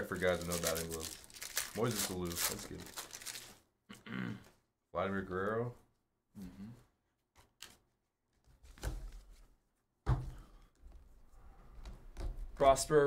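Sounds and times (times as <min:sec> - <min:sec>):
trading cards clicking and rustling: 0:00.1 - 0:03.5.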